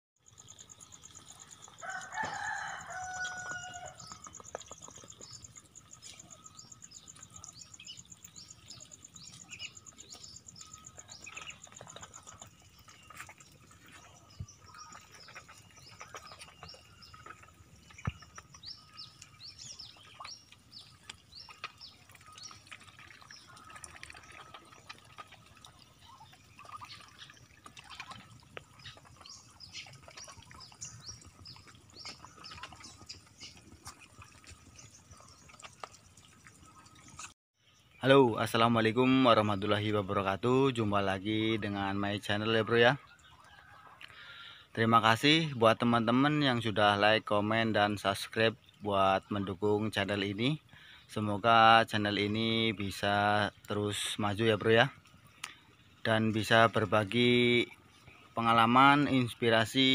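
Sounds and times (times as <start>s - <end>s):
small birds chirping: 0.2s - 59.9s
rooster crowing: 1.8s - 4.2s.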